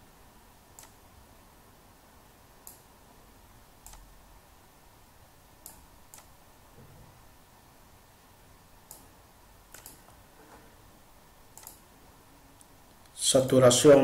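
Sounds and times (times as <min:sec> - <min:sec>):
faint computer mouse clicks: 0:00.8 - 0:01.0, 0:03.8 - 0:04.0, 0:08.9 - 0:09.1, 0:09.7 - 0:10.2, 0:11.5 - 0:11.8.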